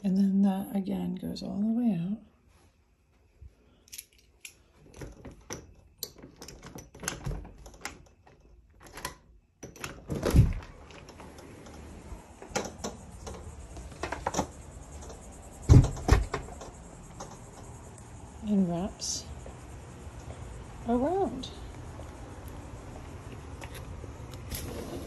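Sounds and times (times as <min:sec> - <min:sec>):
doorknob turning: 0:04.9 - 0:17.7
door handling clicks and taps: 0:12.4 - 0:17.7
heavy thump: 0:15.6 - 0:16.6.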